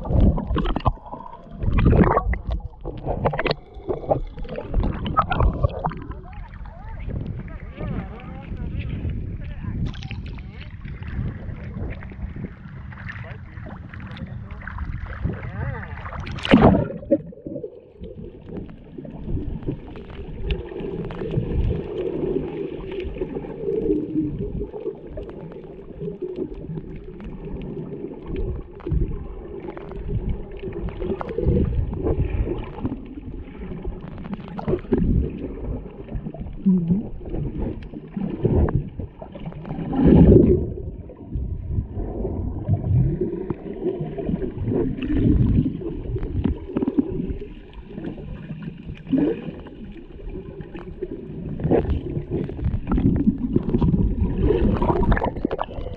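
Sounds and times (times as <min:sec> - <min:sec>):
muffled underwater water movement: 0:00.0 - 0:55.9
splash into water: 0:14.6 - 0:17.5.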